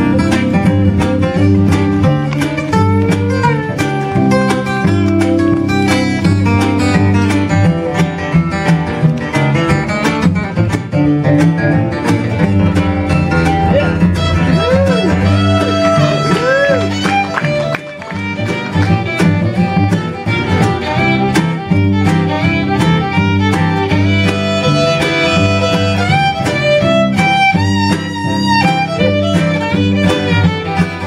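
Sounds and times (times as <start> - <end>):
fiddle: 0.0 - 31.0
mandolin: 0.0 - 31.0
strummed acoustic guitar: 0.0 - 31.0
cello: 12.1 - 31.0.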